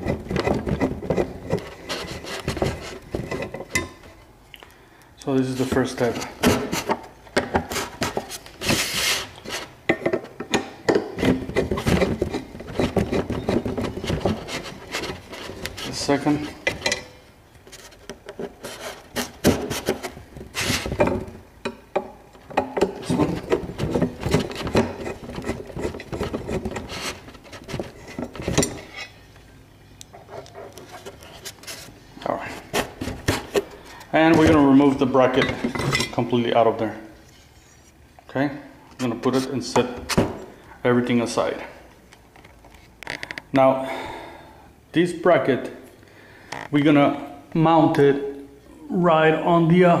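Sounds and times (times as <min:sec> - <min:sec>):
metal clicking and scraping: 0:07.6 - 0:29.2.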